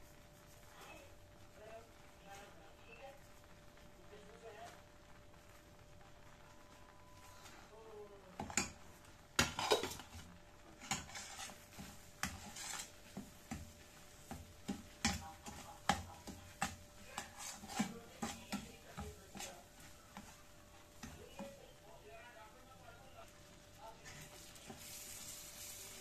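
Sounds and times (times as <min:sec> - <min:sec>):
metal utensils clinking against pot: 0:09.4 - 0:10.2.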